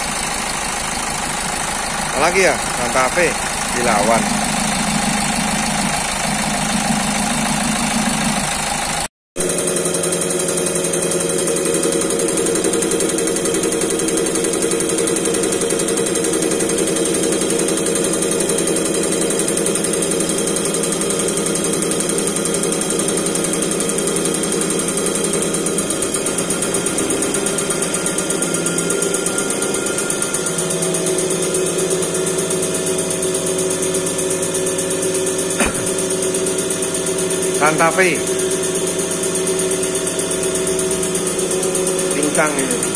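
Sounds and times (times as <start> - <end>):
test bench mechanical hum: 0.0 - 18.5, 19.8 - 42.9
injector rattling: 2.2 - 8.8.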